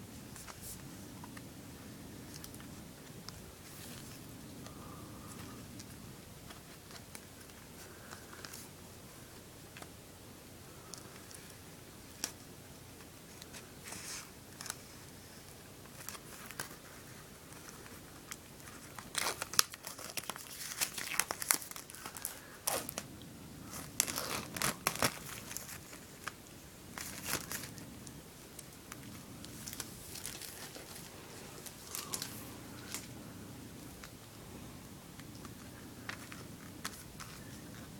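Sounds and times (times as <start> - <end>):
plastic film crinkling and tearing: 17.6 - 23.0, 23.7 - 27.8, 28.6 - 33.1.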